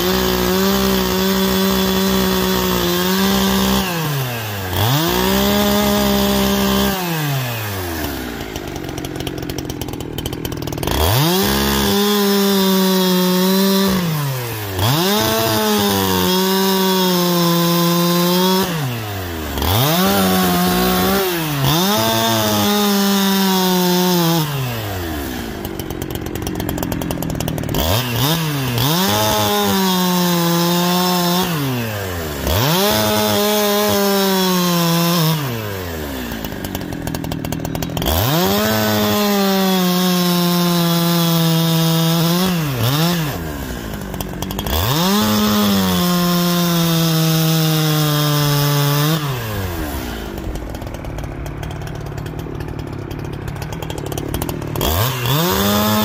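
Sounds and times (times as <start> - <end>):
chainsaw cutting logs: 0.0 - 56.0.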